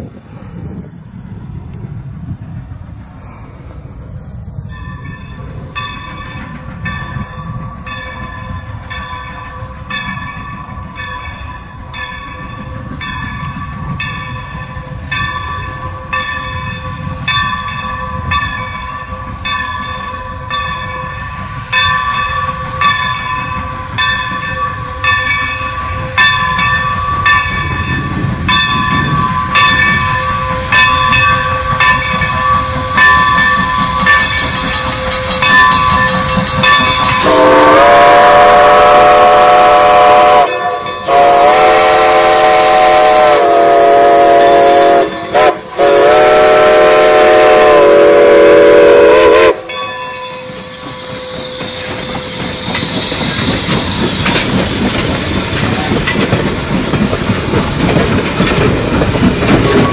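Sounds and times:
train rumbling: 0.0s - 59.9s
locomotive bell ringing: 4.6s - 41.8s, 43.8s - 59.9s
steam whistle blasts: 35.0s - 49.7s.

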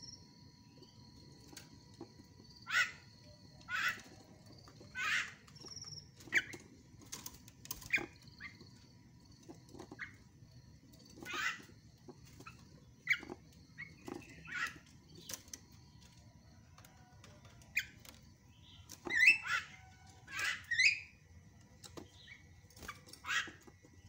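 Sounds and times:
myna bird chattering calls: 2.6s - 4.2s, 4.9s - 5.6s, 11.2s - 11.7s, 12.4s - 14.8s.

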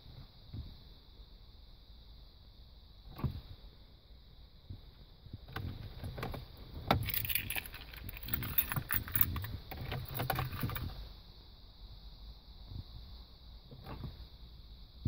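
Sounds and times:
key clicking in ignition lock: 6.9s - 10.9s
keys jangling on a keyring: 7.0s - 10.9s.

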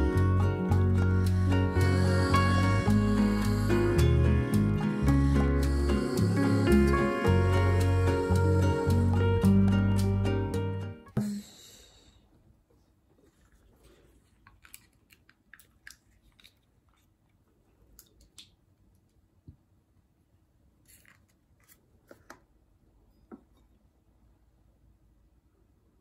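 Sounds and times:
creamer cups clicking and crinkling: 13.1s - 19.2s.

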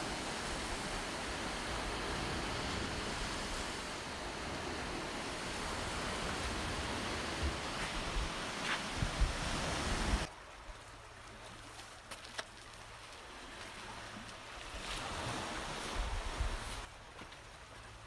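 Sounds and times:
wind on microphone: 0.0s - 10.3s, 14.7s - 16.9s
sea waves washing on shore: 0.0s - 18.0s.

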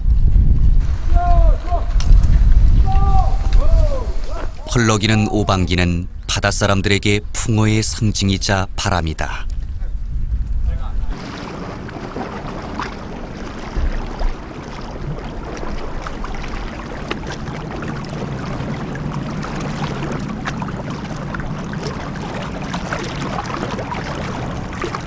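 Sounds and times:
wind and water rushing: 0.0s - 25.0s
boat engine humming: 11.1s - 25.0s.

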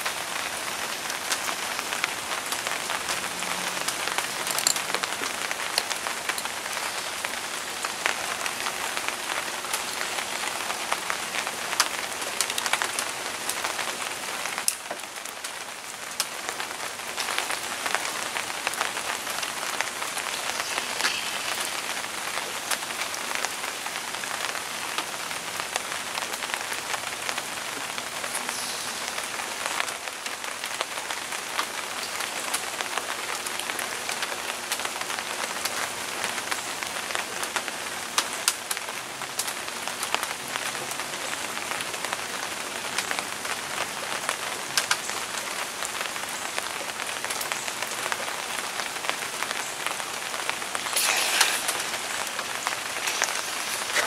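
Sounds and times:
steady rain falling: 0.0s - 54.0s
sharp raindrop hits: 50.2s - 54.0s.

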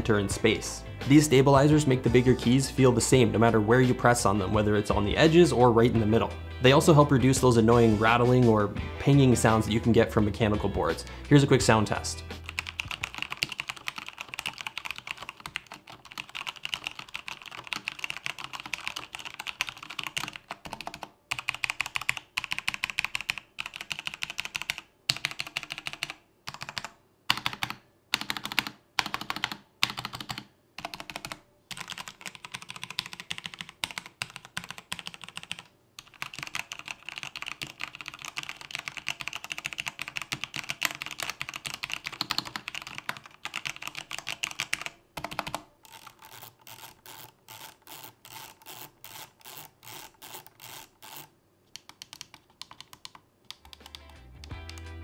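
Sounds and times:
mechanical keyboard typing: 12.4s - 55.0s.

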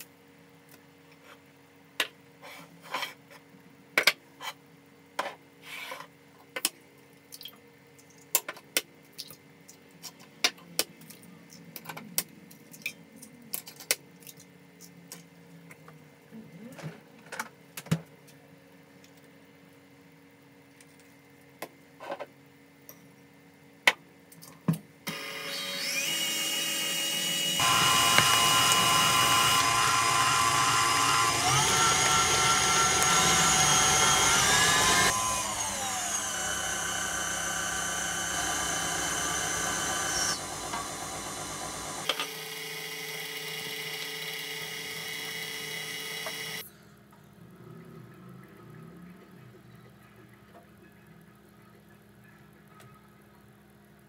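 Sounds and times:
stand mixer whisking: 27.4s - 42.1s.

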